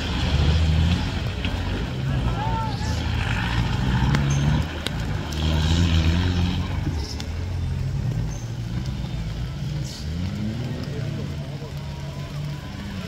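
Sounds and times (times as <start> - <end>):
off-road engine under load: 0.0 - 13.0.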